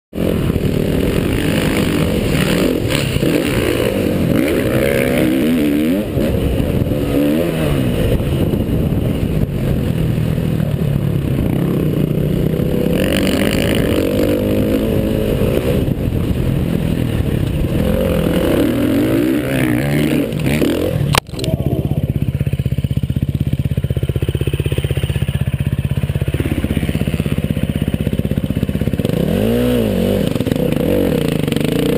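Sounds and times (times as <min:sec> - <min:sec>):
dirt bike engine revving: 0:00.2 - 0:31.9
sharp click: 0:21.1 - 0:21.6.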